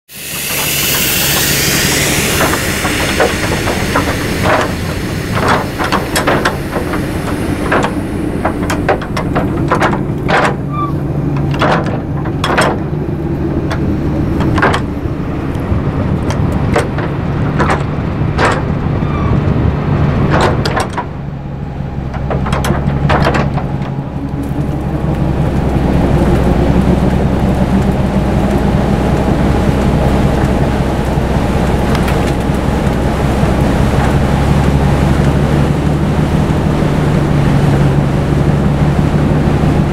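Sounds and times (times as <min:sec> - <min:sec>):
hiss: 0:00.1 - 0:10.9
deep rumble: 0:00.1 - 0:39.9
train engine running: 0:00.1 - 0:39.9
sharp clicks and knocks: 0:00.4 - 0:10.7, 0:11.3 - 0:13.0, 0:13.6 - 0:19.6, 0:20.2 - 0:21.2, 0:22.1 - 0:24.7.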